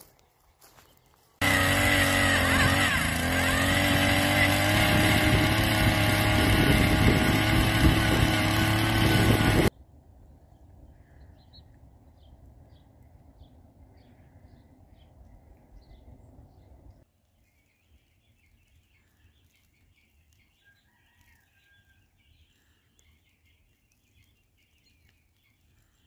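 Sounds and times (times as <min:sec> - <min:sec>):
engine running steadily: 0:01.4 - 0:09.7.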